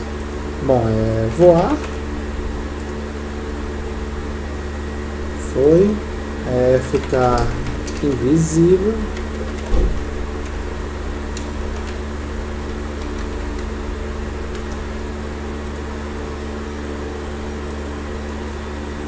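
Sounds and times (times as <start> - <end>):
electrical hum with fan noise: 0.0 - 19.0
keyboard clicks: 12.6 - 13.7, 14.5 - 14.8.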